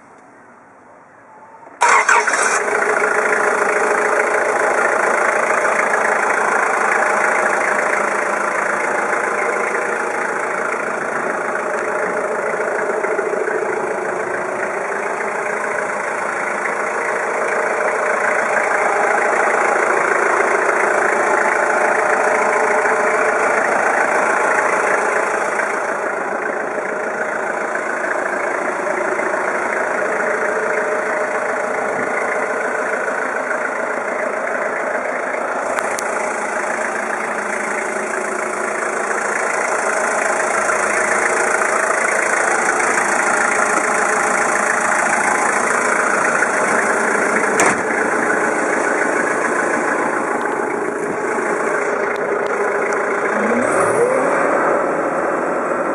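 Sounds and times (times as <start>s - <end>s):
forklift diesel engine idling: 0.0s - 55.9s.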